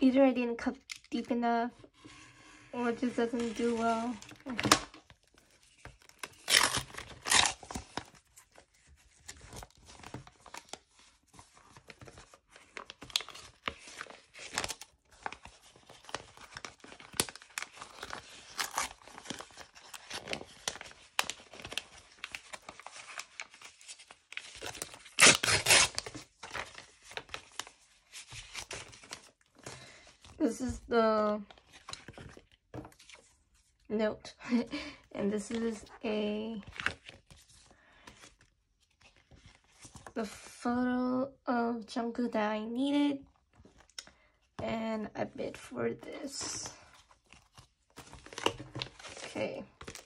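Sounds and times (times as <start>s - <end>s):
paper rustling and crinkling: 1.8s - 33.7s, 34.5s - 40.2s, 45.5s - 50.0s
paper tearing: 6.2s - 8.0s, 24.4s - 26.6s.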